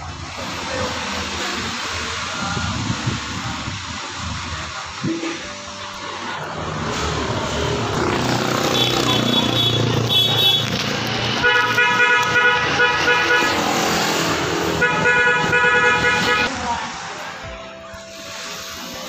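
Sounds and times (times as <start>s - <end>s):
street traffic noise: 0.0s - 19.0s
vehicle horn blasts: 8.6s - 10.8s, 11.4s - 14.0s, 14.8s - 16.5s.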